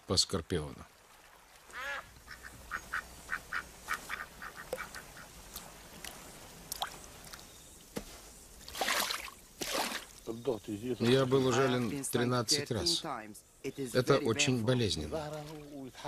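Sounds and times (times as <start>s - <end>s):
ducks quacking: 1.7s - 5.4s.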